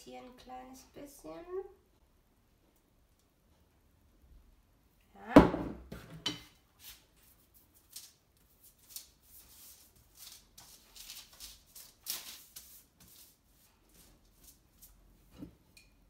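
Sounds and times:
pastry brush swishing on paper: 6.8s - 15.3s.

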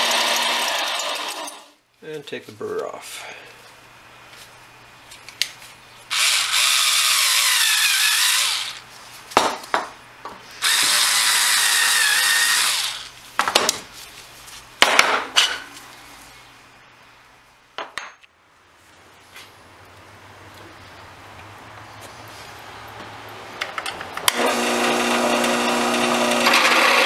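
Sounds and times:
cordless screwdriver deburring steel tube: 6.1s - 8.8s, 10.6s - 13.1s.

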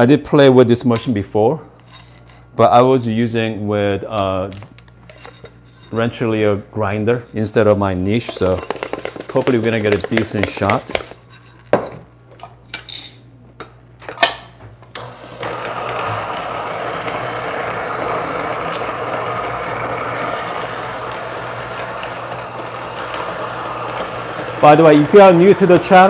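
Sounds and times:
coffee grinder running: 7.6s - 11.2s, 15.0s - 26.0s
coffee beans clicking: 8.1s - 11.2s.

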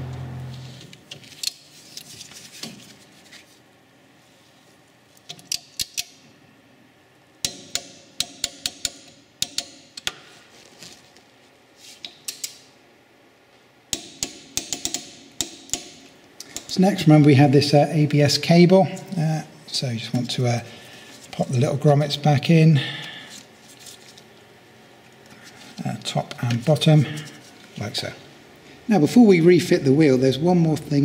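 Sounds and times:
ratcheting wrench clicking: 13.9s - 15.9s.

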